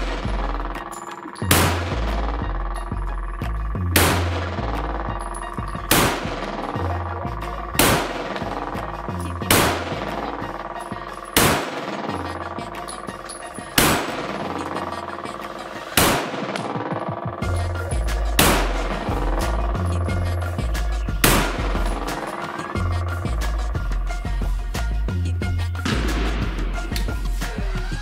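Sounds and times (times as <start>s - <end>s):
handgun shots: 0.0s - 2.2s, 4.0s - 4.7s, 5.9s - 6.7s, 7.8s - 8.8s, 9.4s - 14.9s, 15.9s - 16.9s, 18.4s - 19.1s, 21.2s - 22.7s
music with heavy bass beat: 0.0s - 28.0s.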